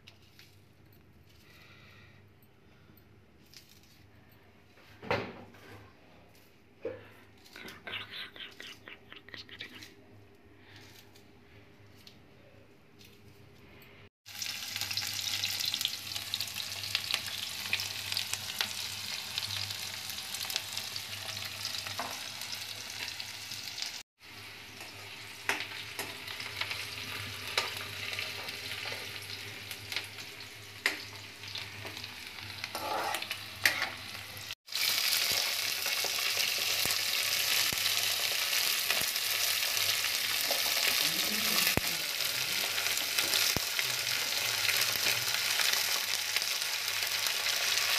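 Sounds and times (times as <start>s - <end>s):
vegetables sizzling in hot oil: 14.3s - 47.9s.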